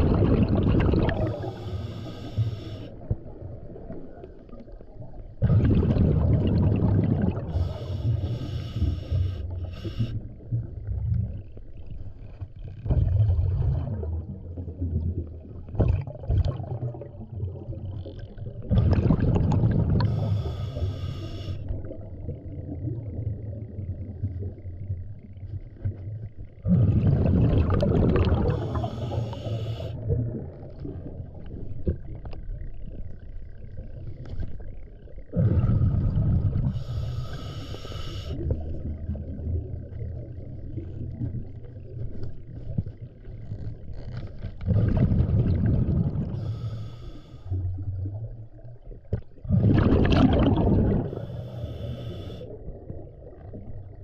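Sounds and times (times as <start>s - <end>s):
underwater bubbles gurgling: 0.0s - 54.0s
regulator hissing inhalations: 1.4s - 2.9s, 7.5s - 10.2s, 20.0s - 21.7s, 28.5s - 30.0s, 36.7s - 38.4s, 46.4s - 47.6s, 51.1s - 52.5s.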